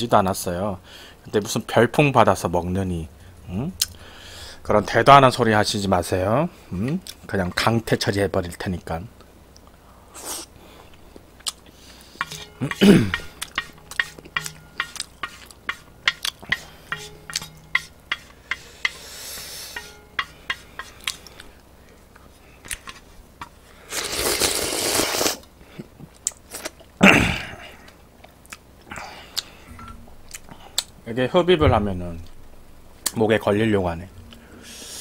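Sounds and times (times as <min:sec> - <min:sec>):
loud slurp of noodles: 0:23.9 - 0:25.4.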